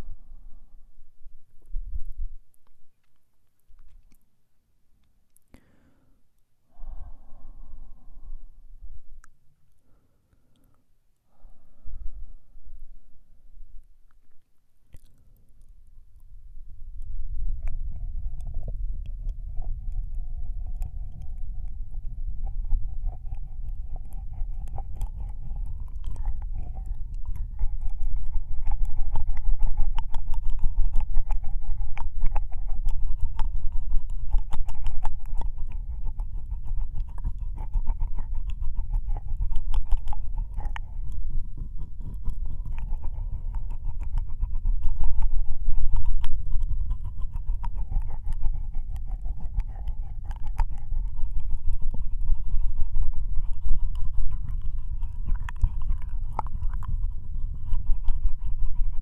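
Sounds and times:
steady low rumble: 0.0 - 3.1, 6.6 - 10.0, 11.3 - 59.0
wet tongue and lip clicks: 1.6 - 4.4, 5.0 - 7.1, 9.1 - 11.5, 13.8 - 59.0.

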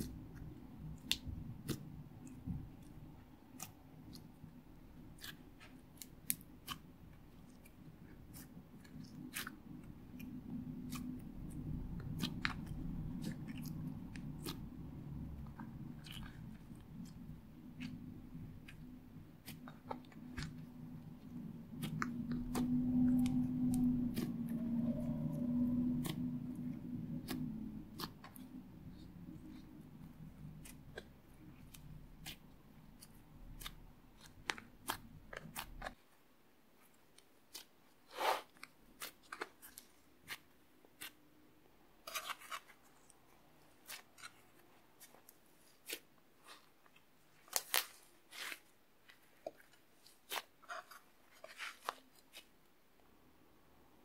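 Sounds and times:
slime crackling and squishing: 0.0 - 52.9
low hum: 20.2 - 31.5.

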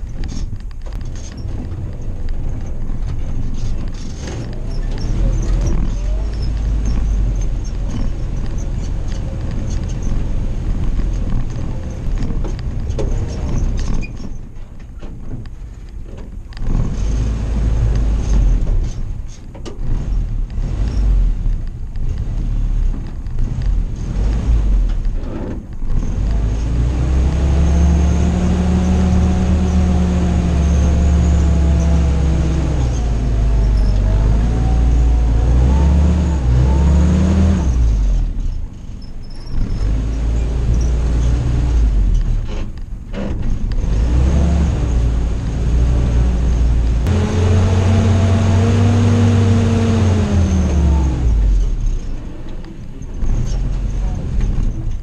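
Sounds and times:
jeep engine revving under load: 19.8 - 25.2, 25.8 - 38.5, 39.5 - 42.8, 43.6 - 52.0.

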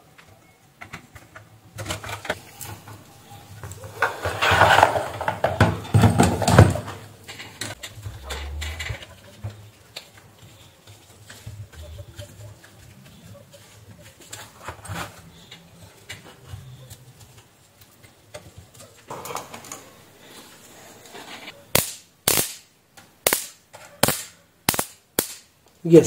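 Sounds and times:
bug zapper snapping cracks: 21.8 - 25.5.

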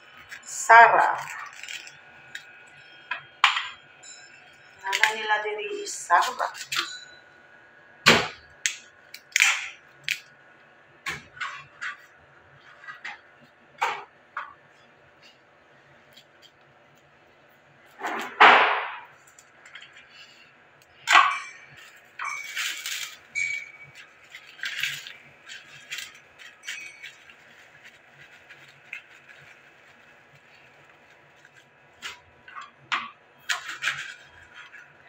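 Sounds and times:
plastic bag crinkling: 0.1 - 2.6, 21.8 - 32.4.

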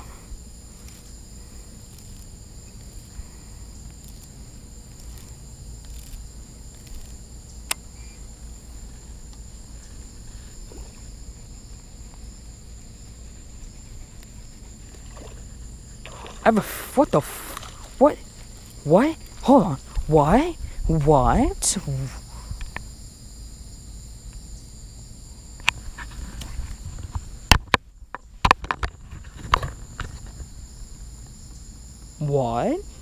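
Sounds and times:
high-pitched insect chorus: 0.0 - 33.0
low rumble of wind: 0.0 - 33.0.

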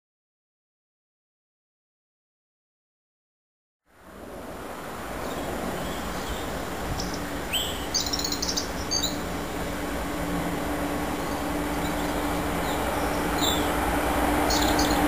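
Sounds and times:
distant diesel locomotive drone: 3.9 - 15.0
low steady hum: 4.2 - 15.0
bird chirps: 5.2 - 9.2, 11.2 - 13.8, 14.4 - 15.0.

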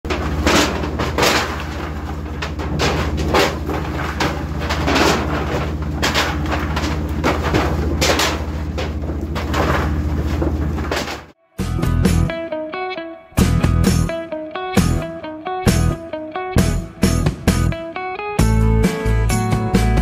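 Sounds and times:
metal trays clanking: 0.1 - 11.4.

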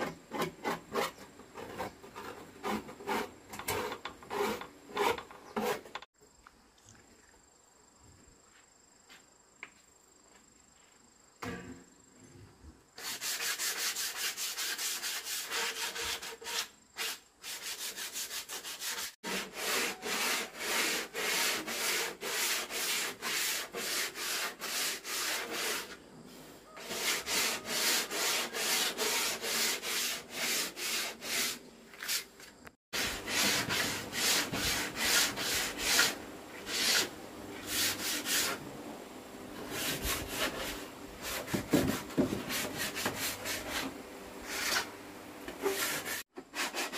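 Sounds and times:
hand sanding wood with sandpaper: 13.0 - 26.0, 26.8 - 32.4, 33.0 - 38.6, 39.6 - 44.9, 45.6 - 46.9.

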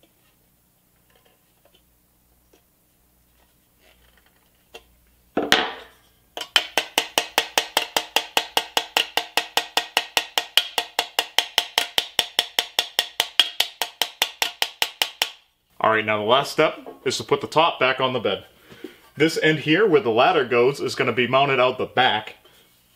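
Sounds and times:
hammer tapping on steel: 6.4 - 15.4.

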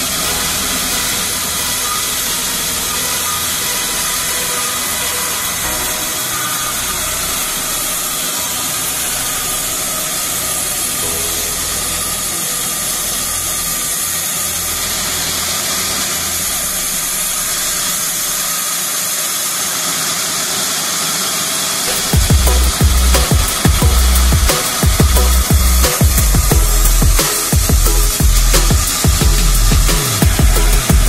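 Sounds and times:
band saw cutting log: 0.0 - 31.0.

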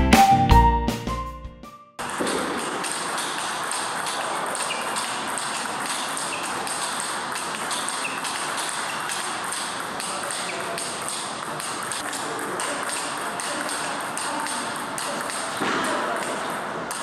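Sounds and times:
background music: 0.0 - 2.0
table tennis balls pinging: 2.0 - 17.0.

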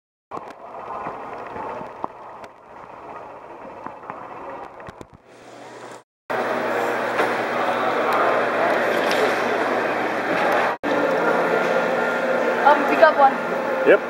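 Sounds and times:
steady hiss and murmur: 5.3 - 14.0.

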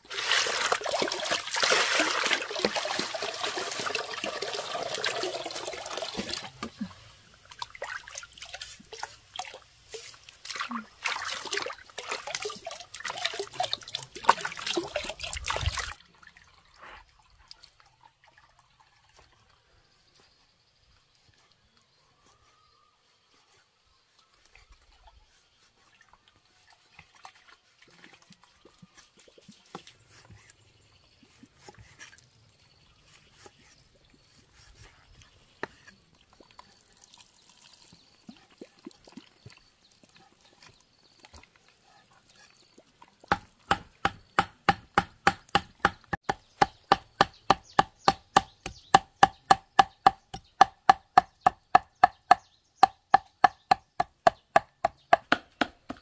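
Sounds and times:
cleaver chopping on wooden block: 43.3 - 56.0.

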